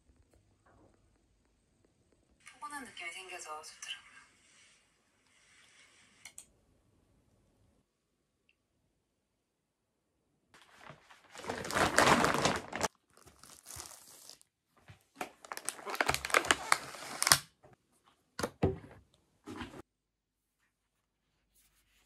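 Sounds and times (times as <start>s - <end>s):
wrapping material crinkling and tearing: 10.6s - 14.5s, 15.2s - 17.5s.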